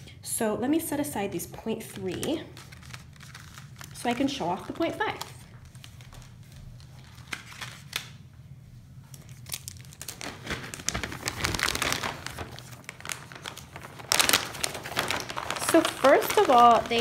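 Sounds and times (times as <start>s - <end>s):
plastic packaging crinkling: 1.8s - 8.3s, 9.0s - 17.0s.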